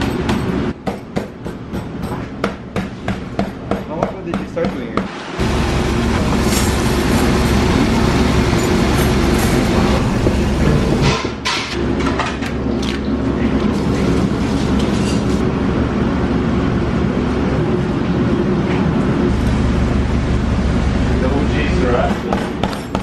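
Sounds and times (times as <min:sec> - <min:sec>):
kitchen equipment humming: 0:04.9 - 0:14.9.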